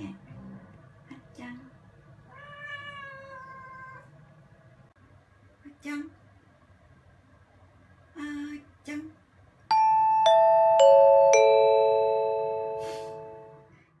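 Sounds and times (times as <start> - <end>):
descending bell-like chimes: 9.7 - 13.6.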